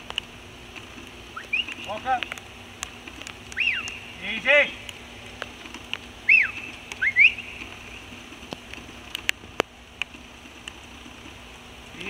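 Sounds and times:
faint sharp clicks: 0:00.0 - 0:04.0, 0:04.8 - 0:11.4
steady faint hiss: 0:00.0 - 0:12.0
rising herding whistle: 0:01.4 - 0:02.1, 0:03.5 - 0:04.7, 0:06.2 - 0:07.7.

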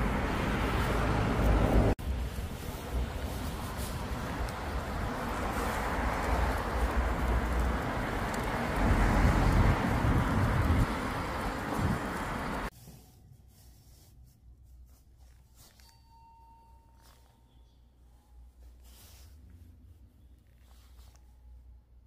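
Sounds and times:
wind buffeting microphone: 0:00.0 - 0:12.7.

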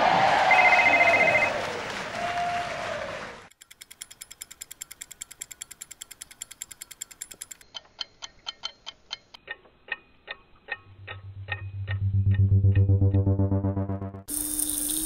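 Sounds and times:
rapid clock ticking: 0:03.5 - 0:13.7
low bass note: 0:10.8 - 0:14.3.

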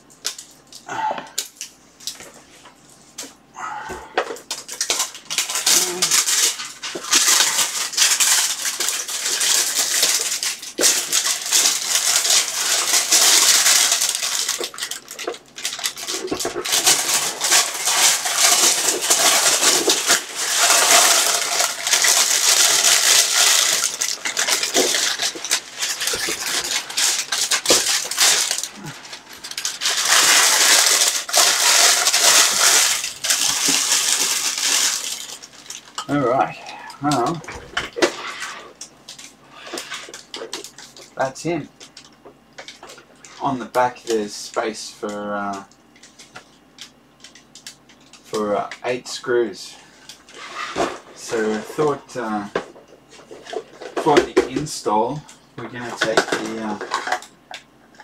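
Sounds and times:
plastic crinkling and rustling: 0:04.4 - 0:41.2, 0:55.6 - 0:58.0.

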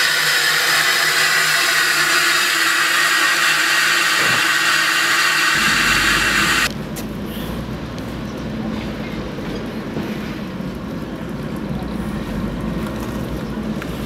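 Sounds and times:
steam hissing: 0:00.0 - 0:06.7.

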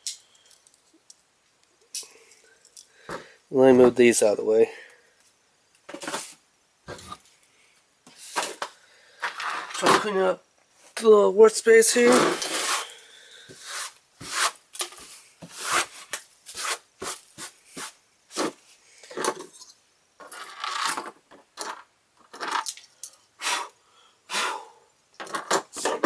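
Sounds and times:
tissue wiping tabletop: 0:12.1 - 0:12.9, 0:13.5 - 0:18.6.

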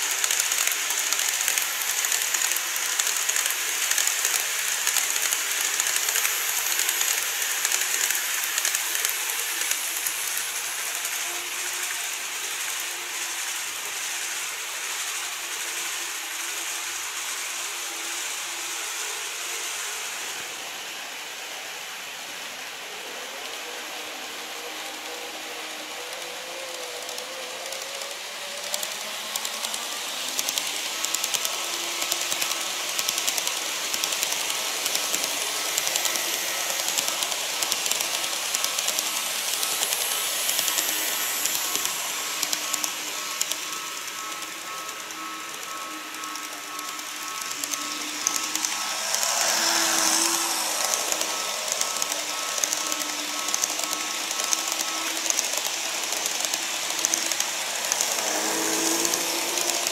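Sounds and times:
wheels clicking over rails: 0:00.0 - 0:13.9, 0:25.0 - 0:59.9
model train motor whine: 0:00.0 - 0:59.9.

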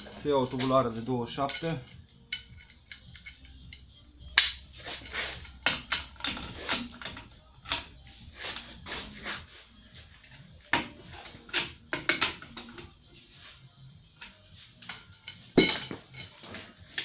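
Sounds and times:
metal tool clinking on hub nut: 0:00.0 - 0:08.7, 0:11.2 - 0:13.0, 0:14.2 - 0:17.0.

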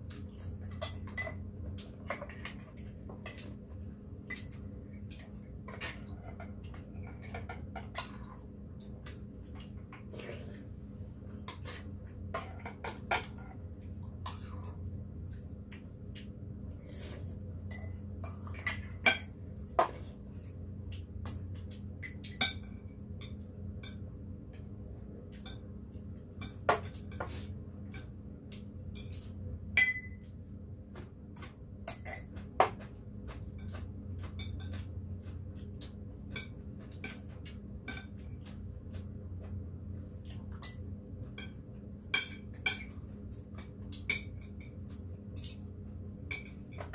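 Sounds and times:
steady low hum: 0:00.0 - 0:46.9
cutlery clinking on ceramic bowls: 0:00.4 - 0:03.5, 0:17.7 - 0:20.0, 0:21.2 - 0:24.1, 0:26.4 - 0:27.3, 0:28.9 - 0:30.3, 0:31.9 - 0:38.6, 0:40.5 - 0:43.0, 0:43.6 - 0:45.6, 0:46.3 - 0:46.9.

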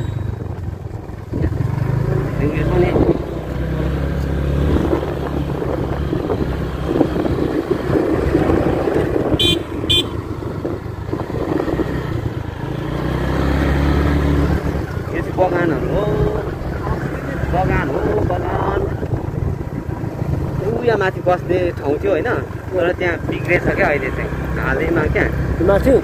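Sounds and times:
motorcycle engine running: 0:00.0 - 0:26.0
short high horn beeps: 0:09.4 - 0:10.2.

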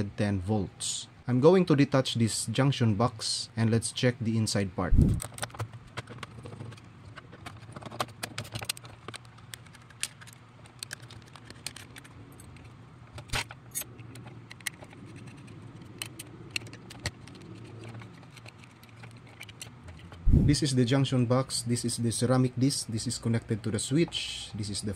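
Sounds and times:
low steady hum: 0:00.0 - 0:24.9
screwdriver clicks and scrapes: 0:05.0 - 0:20.2.

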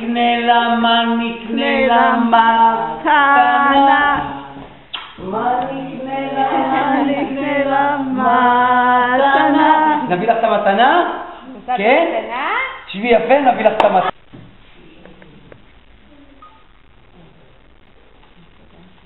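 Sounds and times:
voices singing unaccompanied: 0:00.0 - 0:10.7.

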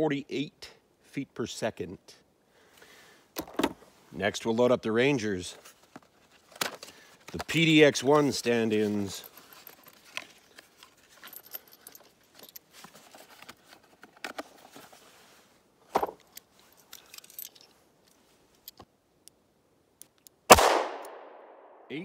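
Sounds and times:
loud revolver click: 0:20.5 - 0:21.2.

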